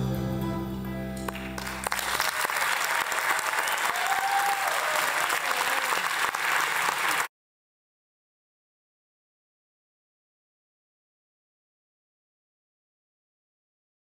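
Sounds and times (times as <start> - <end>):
audience applauding: 1.3 - 7.3.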